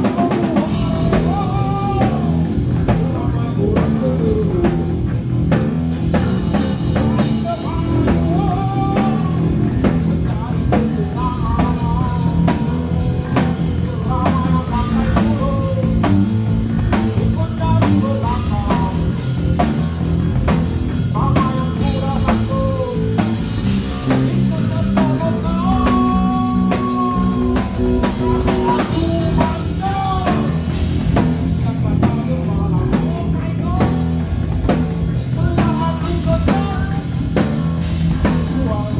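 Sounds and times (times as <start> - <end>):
man singing: 0.0 - 20.0, 21.0 - 30.8, 31.4 - 34.3, 35.1 - 38.9
bass guitar: 0.0 - 38.9
drum kit beat: 0.0 - 38.9
electric guitar: 0.0 - 38.9.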